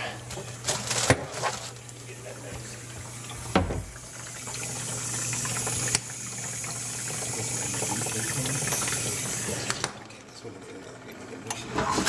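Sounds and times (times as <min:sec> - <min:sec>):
dishwasher motor hum: 0:00.0 - 0:12.0
water hissing in dishwasher: 0:01.3 - 0:10.0.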